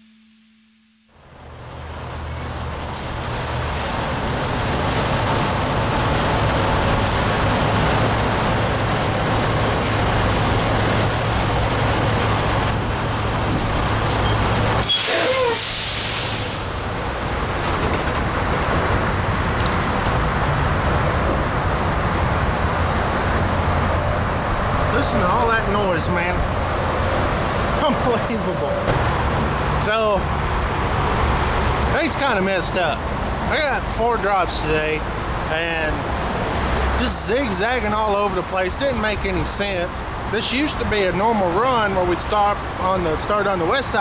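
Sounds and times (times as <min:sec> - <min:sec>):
diesel trucks idling: 0:01.2 - 0:44.0
air brake squeal and hiss: 0:14.1 - 0:16.8.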